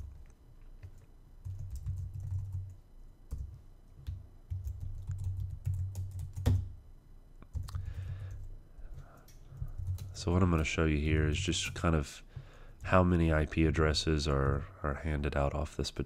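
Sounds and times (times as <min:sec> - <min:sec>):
keyboard typing: 0:00.0 - 0:06.7, 0:07.4 - 0:10.7.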